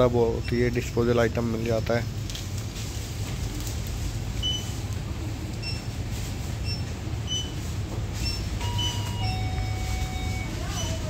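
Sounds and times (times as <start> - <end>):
faint short high beep: 8.6 - 11.0.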